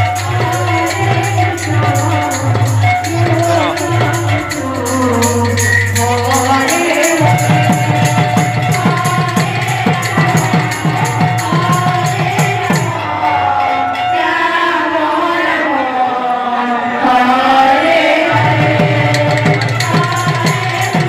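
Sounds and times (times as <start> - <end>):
rapid hand drum strokes: 0.0 - 13.1, 18.3 - 21.0
jingling beats: 0.0 - 14.5, 18.3 - 21.0
sustained held melody: 0.0 - 15.8
person singing: 0.0 - 21.0.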